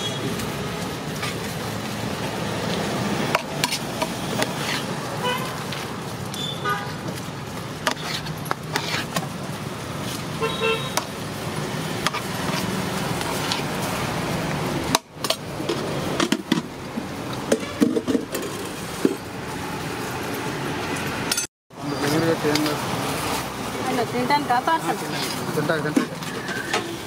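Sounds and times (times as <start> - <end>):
street traffic: 0.0 - 27.0
metal spoon scraping pots: 3.3 - 5.0, 7.8 - 9.2, 12.0 - 13.7
vehicle horn toot: 5.2 - 5.6, 6.4 - 7.0, 10.4 - 11.0, 26.6 - 27.0.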